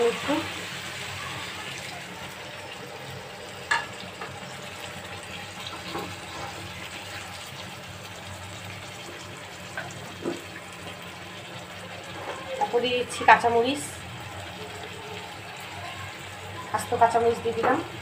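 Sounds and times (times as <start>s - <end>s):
vegetables sizzling in a pan: 0.0s - 18.0s.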